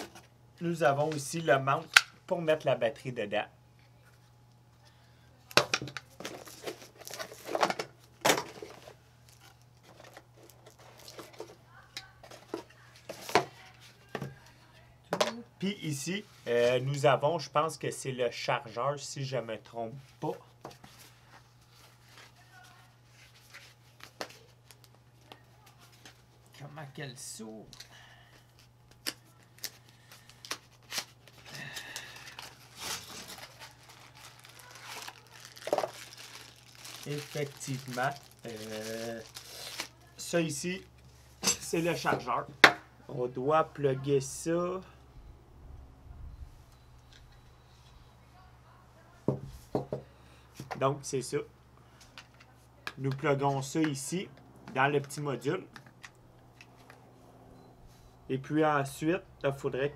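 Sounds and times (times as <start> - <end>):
plastic wrap crinkling: 8.4 - 14.0, 28.6 - 40.9
cardboard rustling: 32.1 - 39.9.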